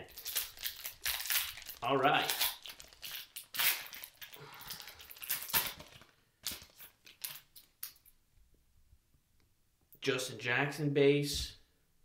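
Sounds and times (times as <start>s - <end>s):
foil wrapper crinkling: 0.0s - 8.1s.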